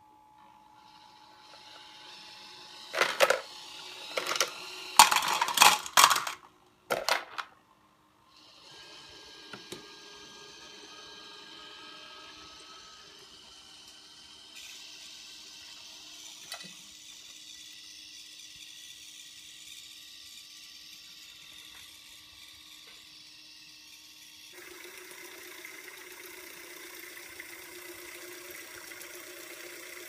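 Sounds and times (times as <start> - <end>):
motor humming: 0.6 - 6.3, 8.3 - 30.0
ice cubes clattering into plastic cup: 4.2 - 7.5.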